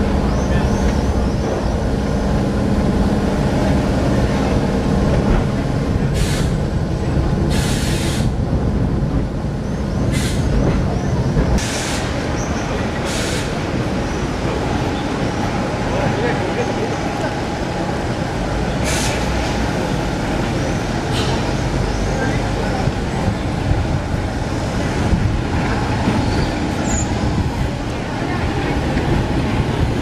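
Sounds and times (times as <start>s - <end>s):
electric tram rumble and hum: 0.0s - 30.0s.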